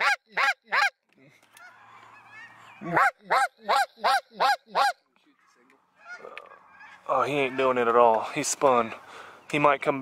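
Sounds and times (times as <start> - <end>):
geese chattering: 0.0 - 0.9, 1.5 - 9.7
goose call honks: 0.0 - 0.9, 1.6 - 5.0, 6.0 - 7.7.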